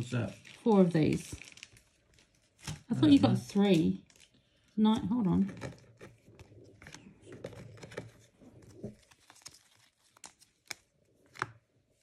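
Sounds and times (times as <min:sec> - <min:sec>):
foil wrappers crinkling: 0:00.0 - 0:11.5.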